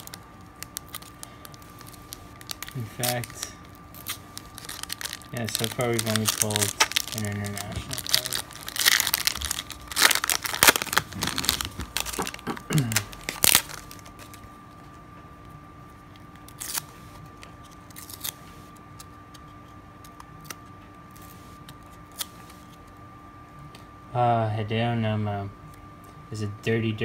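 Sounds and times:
foil wrapper crinkling and tearing: 0.0 - 14.6, 16.2 - 19.1.

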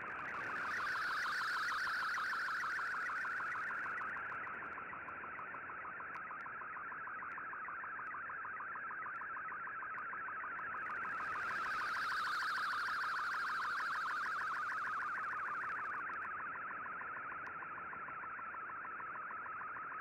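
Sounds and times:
warbling data tone: 0.2 - 4.4, 10.8 - 16.3.

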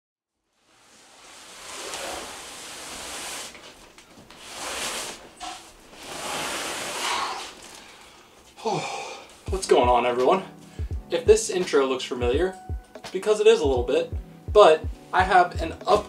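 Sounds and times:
cardboard box scraping on floor: 0.6 - 7.9.

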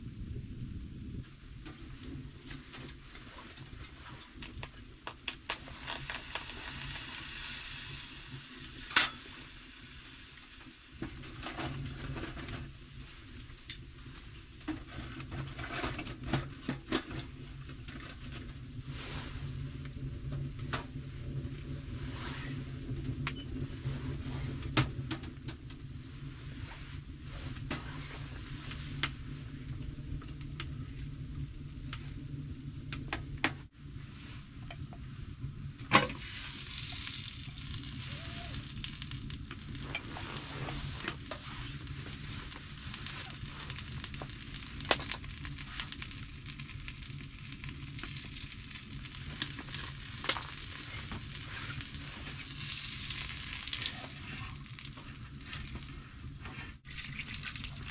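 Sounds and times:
food sizzling in a pan: 5.6 - 11.5, 36.1 - 56.0.

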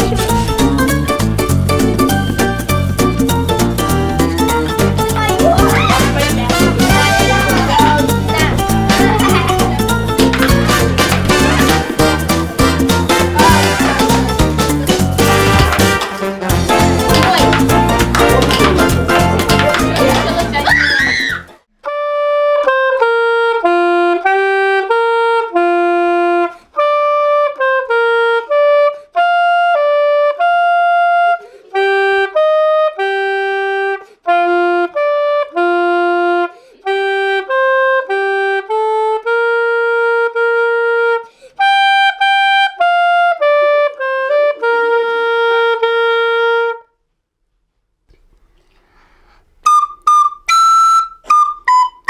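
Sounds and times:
soprano saxophone solo melody: 21.8 - 47.0.

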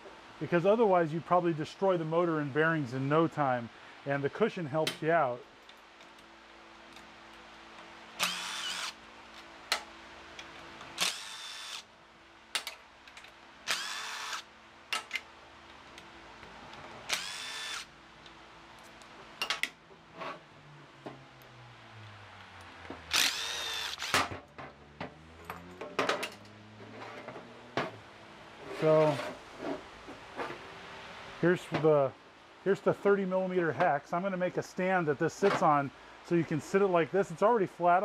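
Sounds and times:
impact driver motor whine: 8.2 - 9.0, 11.0 - 11.8, 13.7 - 14.4, 17.1 - 17.9, 23.1 - 24.3.

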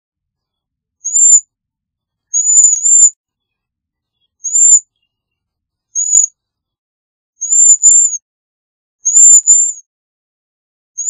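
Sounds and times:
high-pitched bird calls: 1.0 - 1.4, 2.3 - 6.4, 7.4 - 8.2, 9.0 - 9.9.

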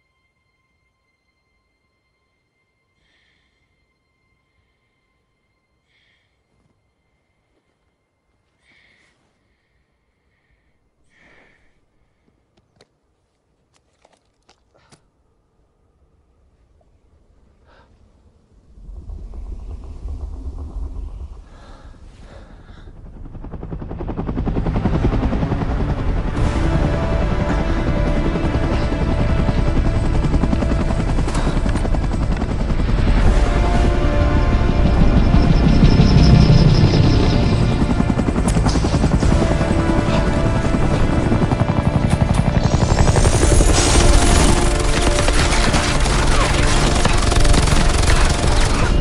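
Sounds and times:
man breathing faintly: 5.8 - 7.8, 8.4 - 12.6, 17.5 - 18.5, 20.9 - 23.3
clicks and rustles of gear: 12.5 - 15.1
helicopter rotor chop: 18.7 - 49.0.

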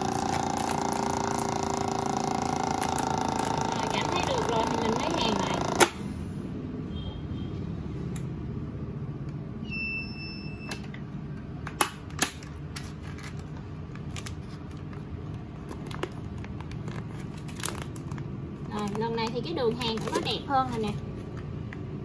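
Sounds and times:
vacuum sealer pump humming: 0.0 - 6.2.

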